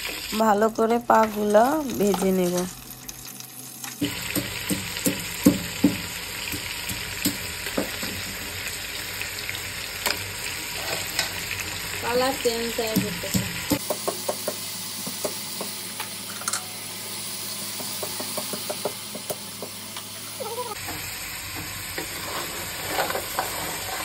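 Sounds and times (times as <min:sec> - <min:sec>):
crab frying in hot oil: 0:00.0 - 0:24.0
spatula scraping shells in pot: 0:10.7 - 0:11.4, 0:20.8 - 0:24.0.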